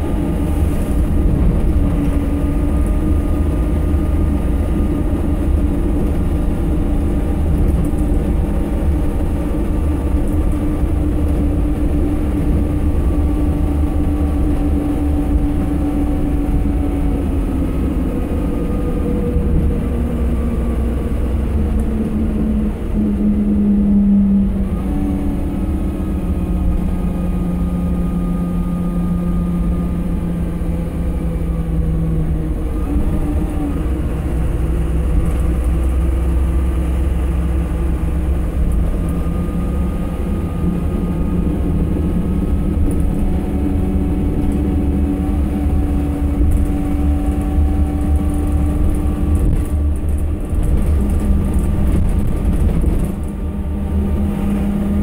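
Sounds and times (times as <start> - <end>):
diesel bus engine rumble: 0.0 - 55.0
drivetrain whine: 0.0 - 55.0.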